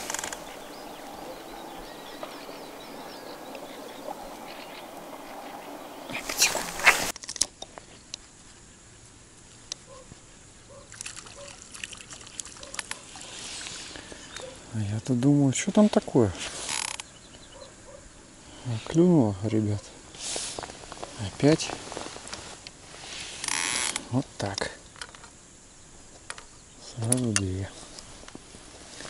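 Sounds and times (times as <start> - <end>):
water washing: 0.0 - 7.1, 10.9 - 14.0
water drips and clicks: 0.0 - 7.2, 10.9 - 13.8.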